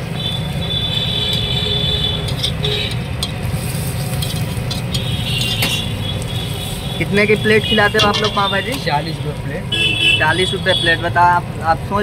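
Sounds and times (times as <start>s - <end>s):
metal spatula scraping a pan: 1.3s - 6.9s, 7.9s - 8.5s
vegetables frying in a pan: 2.2s - 9.6s.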